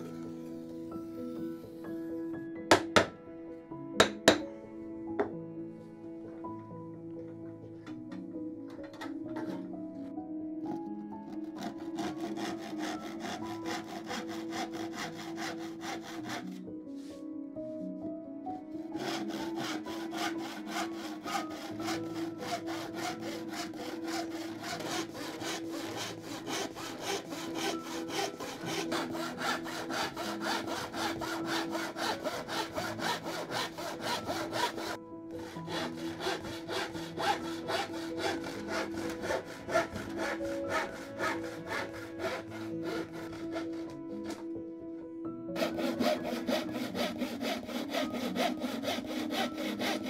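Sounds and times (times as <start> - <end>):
hand saw cutting plywood: 11.2 - 16.6, 18.8 - 44.5, 45.6 - 50.0.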